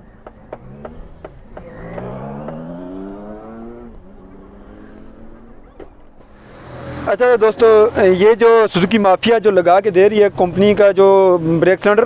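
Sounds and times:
engine accelerating: 0:00.0 - 0:08.7.

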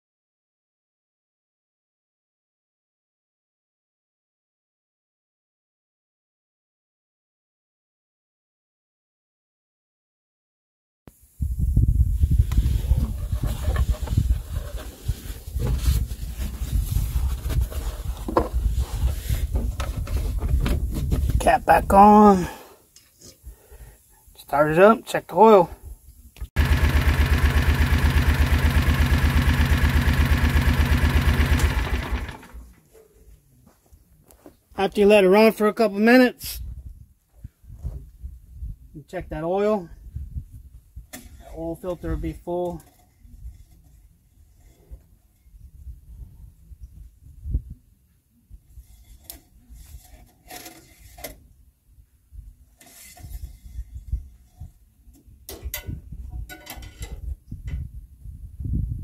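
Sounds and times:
fabric rustling on microphone: 0:11.8 - 0:21.4
engine idling: 0:26.6 - 0:32.7.

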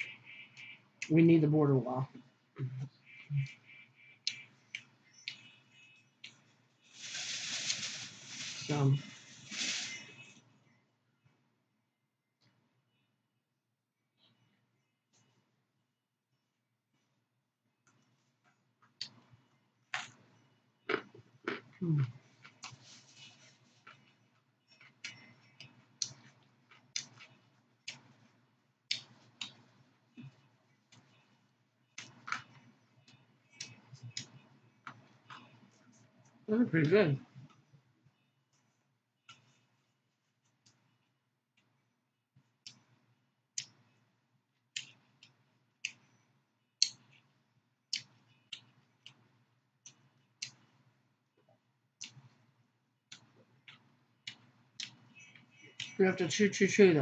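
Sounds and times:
chewing crunchy raw vegetables: 0:20.9 - 0:22.8
chewing crunchy vegetables: 0:20.9 - 0:28.2.

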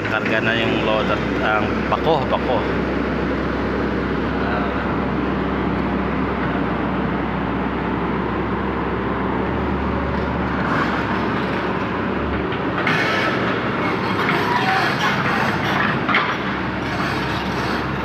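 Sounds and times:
steel tracks clanking: 0:00.0 - 0:02.8, 0:10.2 - 0:18.0
excavator diesel engine running: 0:00.0 - 0:18.0.

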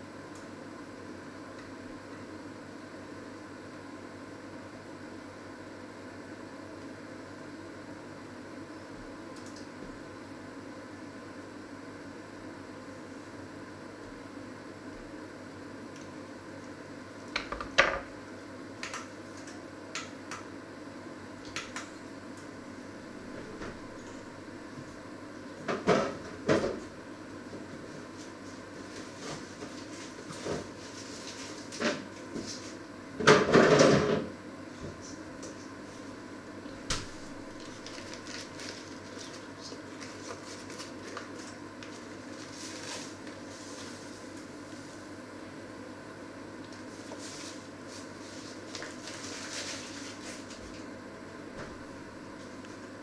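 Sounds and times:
steady background hum: 0:00.0 - 0:53.0
paper bag crinkling: 0:37.5 - 0:44.1, 0:48.4 - 0:50.7.

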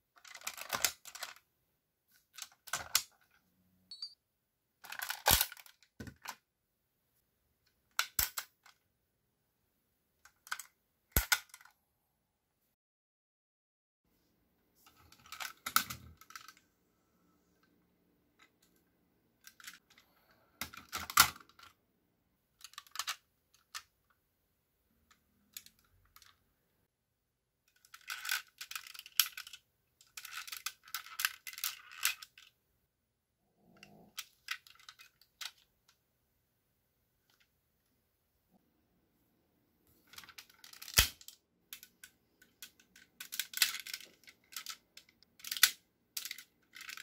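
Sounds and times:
plastic toy parts clicking: 0:00.2 - 0:01.4, 0:02.2 - 0:03.3, 0:04.8 - 0:06.4, 0:07.9 - 0:08.8, 0:10.2 - 0:11.7, 0:14.9 - 0:16.6, 0:19.4 - 0:20.0, 0:20.6 - 0:21.8, 0:22.6 - 0:23.9, 0:25.1 - 0:26.4, 0:27.7 - 0:32.5, 0:33.8 - 0:35.7, 0:40.1 - 0:47.0.

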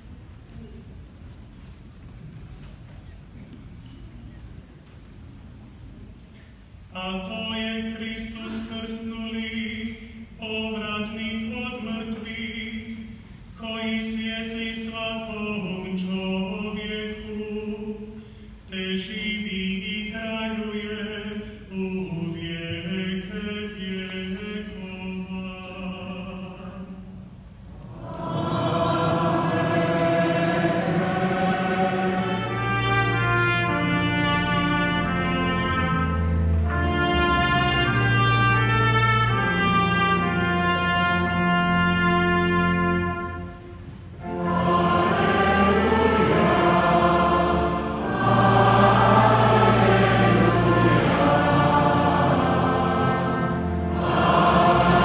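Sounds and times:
choir and congregation singing hymn: 0:27.8 - 0:35.3, 0:44.2 - 0:55.0.

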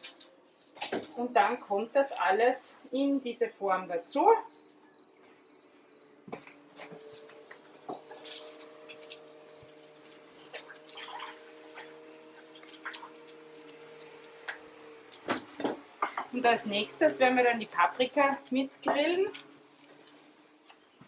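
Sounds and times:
cricket chirping: 0:00.0 - 0:14.9.

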